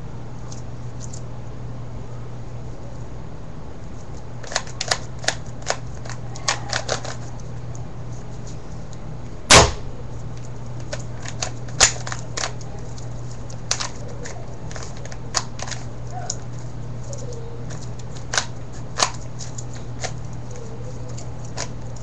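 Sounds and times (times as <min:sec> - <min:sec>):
low hum: 0:09.3 - 0:10.5.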